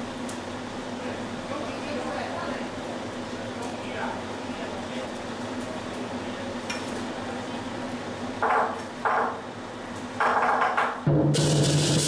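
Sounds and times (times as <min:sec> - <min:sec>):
loud drumming and music: 0:11.0 - 0:12.0.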